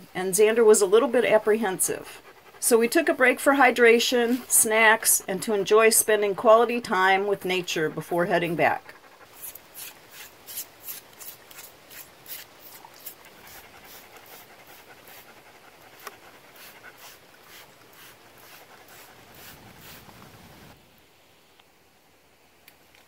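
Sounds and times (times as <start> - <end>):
dog panting: 0.0 - 10.3, 12.7 - 20.4.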